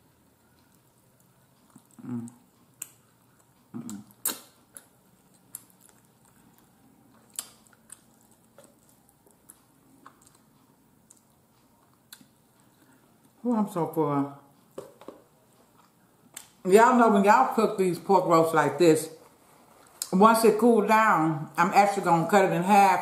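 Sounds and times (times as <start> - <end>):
soft chewing: 0.0 - 13.4, 14.5 - 16.6, 19.1 - 20.1.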